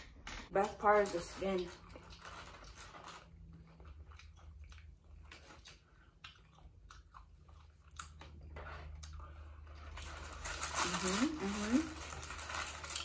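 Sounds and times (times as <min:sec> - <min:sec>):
chewing and biting chicken wings: 0:01.9 - 0:09.6.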